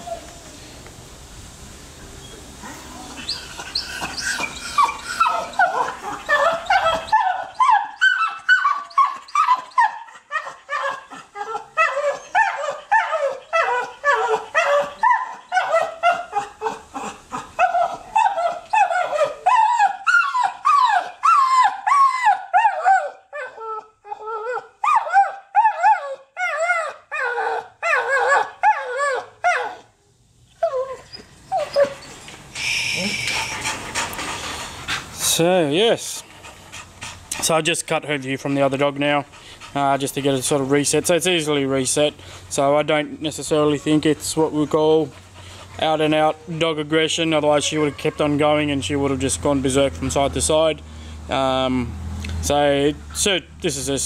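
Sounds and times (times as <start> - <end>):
dog barking and whining: 0.0 - 0.4, 2.2 - 30.0, 30.6 - 37.6, 45.0 - 48.8.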